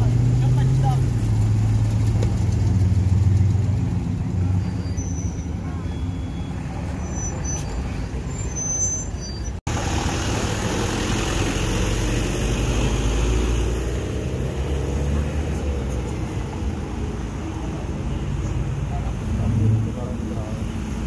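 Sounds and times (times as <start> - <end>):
pickup truck driving off: 9.7 - 17.0.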